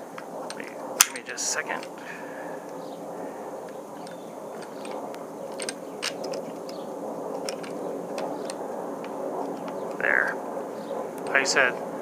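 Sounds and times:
steady background hum: 0.0s - 12.0s
pistol clicks and scrapes: 4.0s - 10.0s.

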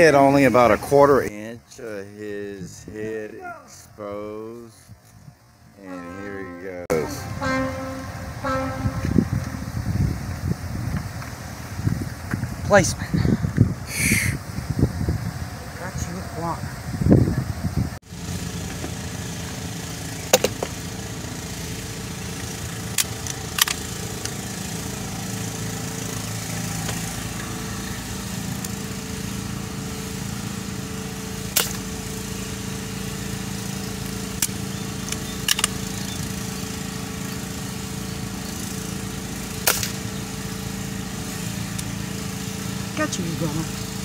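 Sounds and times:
vehicle engine idling: 6.9s - 44.0s.

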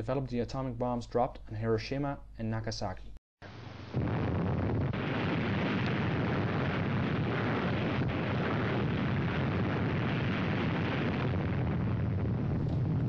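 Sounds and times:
explosion rumbling roar: 3.9s - 13.0s.

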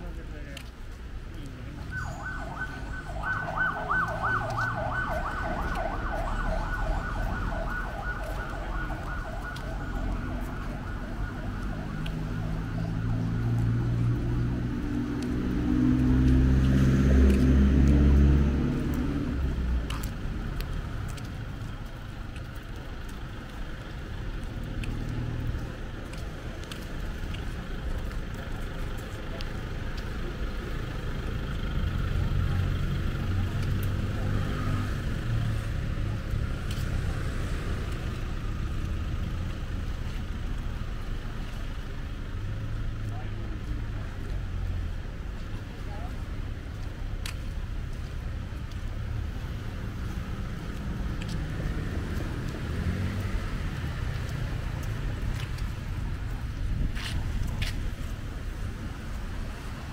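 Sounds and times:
low traffic rumble: 0.0s - 59.9s
vehicle passing close: 2.6s - 21.2s.

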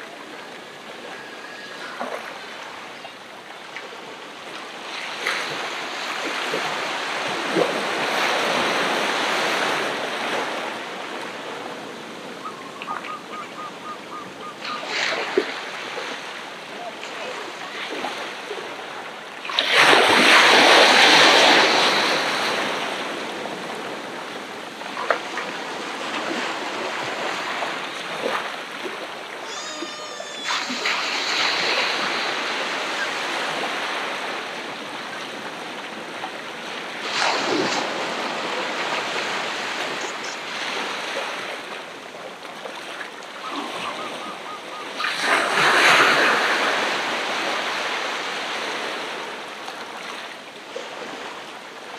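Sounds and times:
ocean waves breaking: 0.0s - 51.9s.

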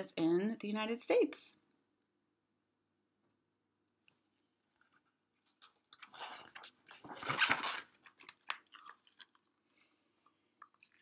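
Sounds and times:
book pages turning: 4.1s - 9.5s.

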